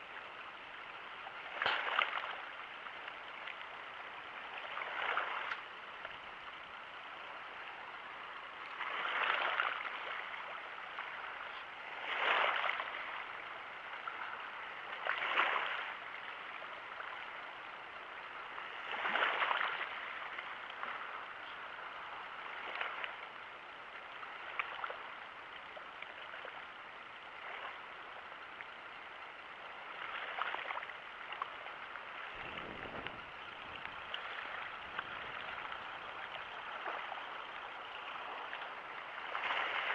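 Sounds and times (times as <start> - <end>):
small waves lapping: 0.0 - 39.9.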